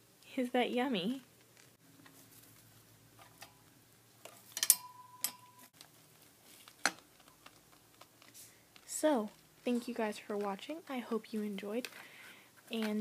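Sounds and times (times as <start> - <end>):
faint steady tone: 4.6 - 5.8
guinea pigs chewing: 5.8 - 11.8.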